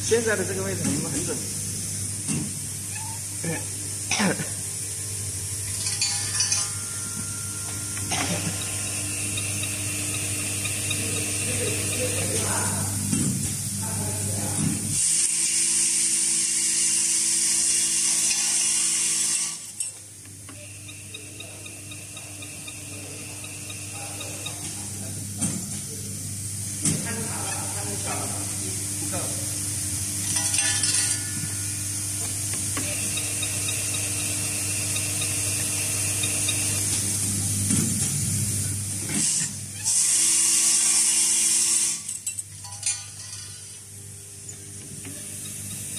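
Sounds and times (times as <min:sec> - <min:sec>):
machine whirring: 0:00.0 - 0:45.9
motor hum and whine: 0:00.0 - 0:45.9
clatter of forming tools: 0:05.6 - 0:13.6, 0:14.5 - 0:25.9, 0:30.2 - 0:31.6, 0:32.2 - 0:38.2, 0:39.0 - 0:43.8, 0:44.4 - 0:45.9.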